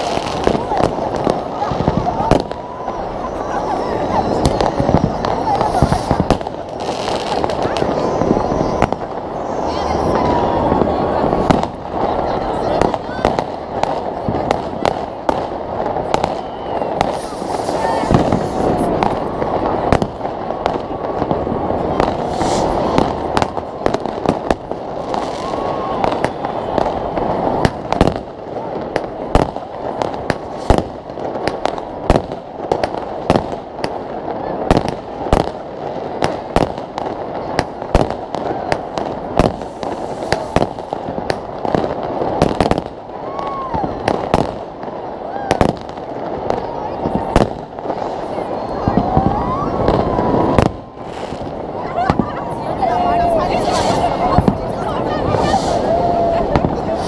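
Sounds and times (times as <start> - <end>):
fireworks bangs: 0.0 - 57.0
fireworks whistling: 0.0 - 57.0.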